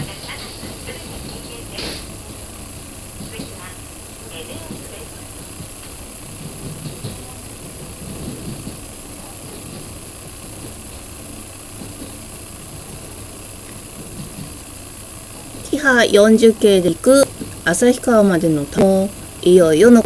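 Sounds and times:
train rolling noise: 0:00.0 - 0:20.0
diesel engine drone: 0:07.1 - 0:20.0.

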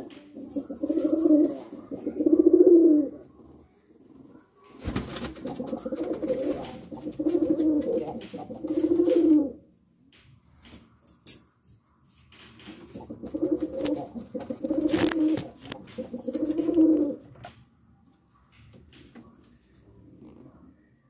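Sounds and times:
pigeons cooing: 0:00.0 - 0:03.4, 0:05.1 - 0:09.6, 0:12.9 - 0:17.5.

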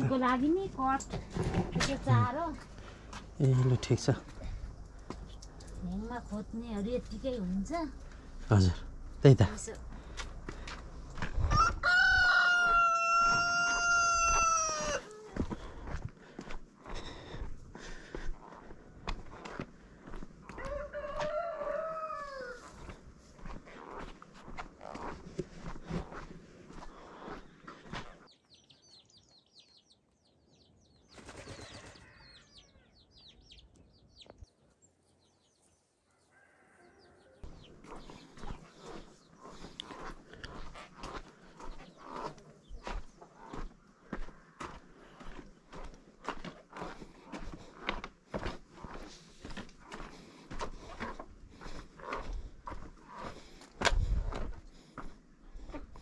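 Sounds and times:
small birds chirping: 0:00.0 - 0:11.1, 0:22.5 - 0:56.0
rooster crowing: 0:11.4 - 0:15.4, 0:20.5 - 0:22.9, 0:36.1 - 0:37.5
pigeon wings flapping: 0:31.1 - 0:32.0.

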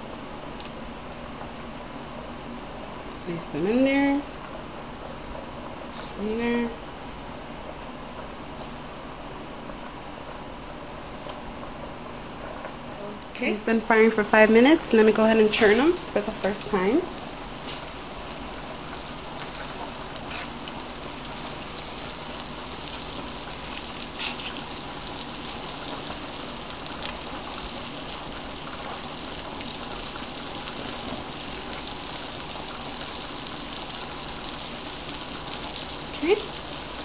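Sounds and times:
hot oil sizzling and bubbling: 0:13.4 - 0:37.0.

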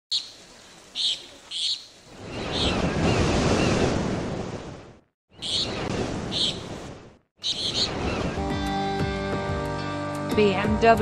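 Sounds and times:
wave washing in: 0:02.1 - 0:08.4.

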